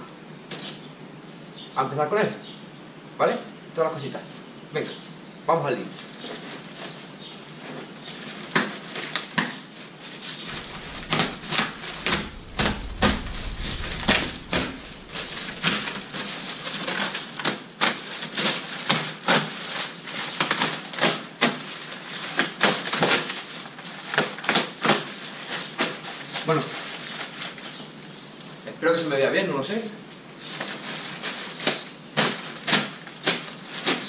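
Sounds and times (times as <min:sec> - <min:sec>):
low rumble: 0:10.5 - 0:17.0.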